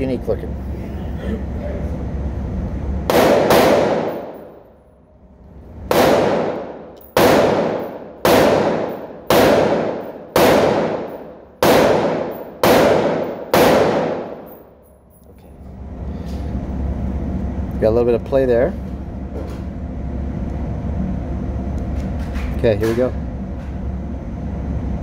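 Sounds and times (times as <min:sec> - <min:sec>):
gunshots: 0:03.1 - 0:04.6, 0:05.9 - 0:14.5.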